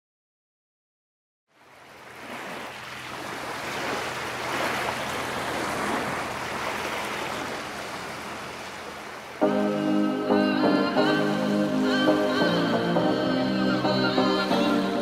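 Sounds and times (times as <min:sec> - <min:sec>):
sea waves breaking: 0:01.5 - 0:15.0.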